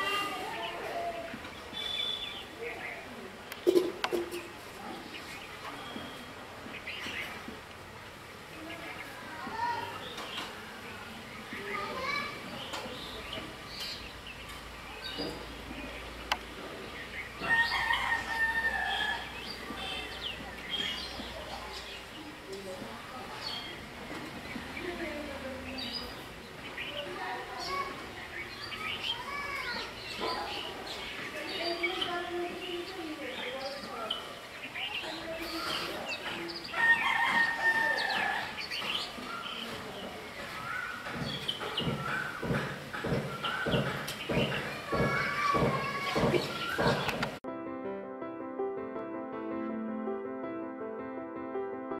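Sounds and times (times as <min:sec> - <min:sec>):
small birds chirping: 0:00.0 - 0:47.4
rooster crowing: 0:17.4 - 0:19.4, 0:36.7 - 0:38.6.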